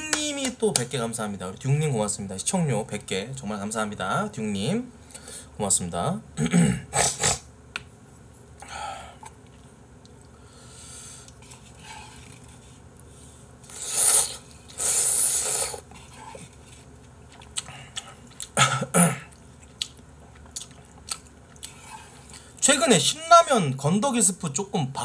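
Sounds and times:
person slurping noodles: 0:13.7 - 0:16.5.

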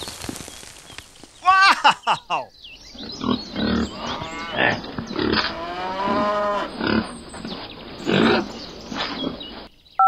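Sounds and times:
cow mooing: 0:03.3 - 0:07.2.

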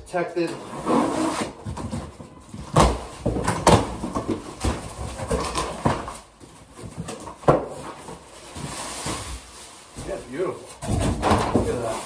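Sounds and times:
cardboard scraping and rubbing: 0:00.5 - 0:06.2, 0:06.8 - 0:09.8.

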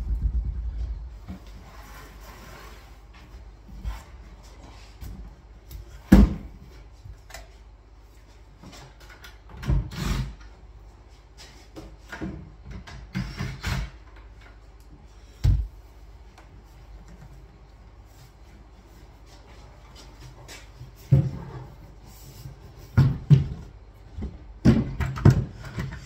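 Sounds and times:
wall cabinet knocks and thuds: 0:06.0 - 0:06.6, 0:22.9 - 0:26.0.

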